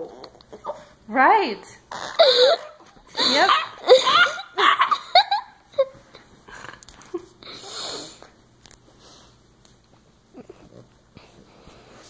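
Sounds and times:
puppy vocal noises: 0.0s - 1.0s, 1.9s - 4.4s
person talking: 3.2s - 3.8s.

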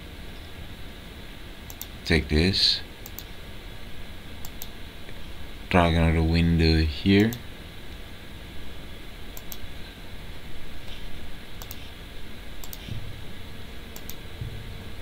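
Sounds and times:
faint steady hiss: 0.0s - 15.0s
computer mouse clicking: 1.7s - 1.9s, 3.0s - 3.3s, 4.4s - 4.7s, 9.4s - 9.6s, 11.6s - 11.9s, 12.6s - 12.9s, 14.0s - 14.2s.

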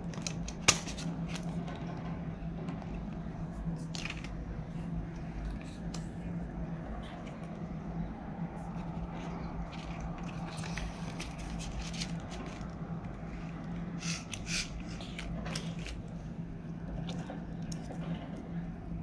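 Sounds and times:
plastic rustling and crinkling: 0.0s - 2.0s, 2.6s - 4.4s, 8.6s - 13.6s, 14.2s - 16.2s
steady low hum: 0.0s - 19.0s.

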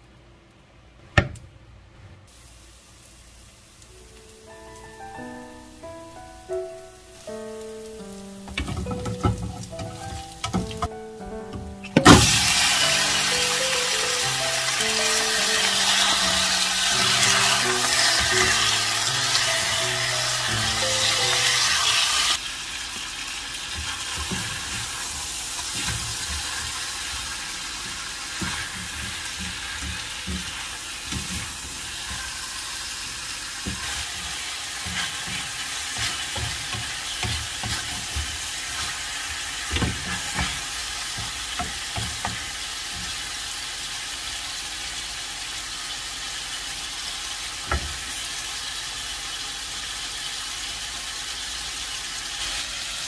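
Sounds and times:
chicken wings sizzling in a frying pan: 2.3s - 53.0s
spatula knocking against pan: 39.7s - 43.2s.

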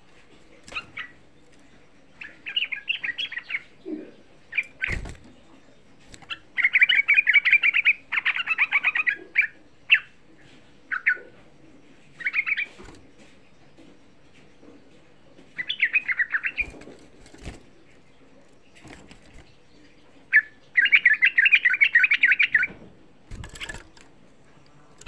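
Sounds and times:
bird singing rapid notes: 0.5s - 10.2s, 15.5s - 22.7s.

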